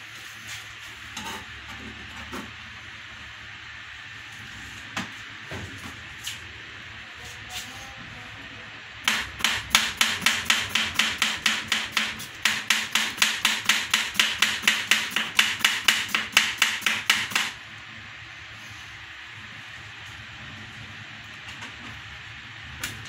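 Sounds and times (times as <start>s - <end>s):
knife chopping on plastic board: 9.1s - 17.5s.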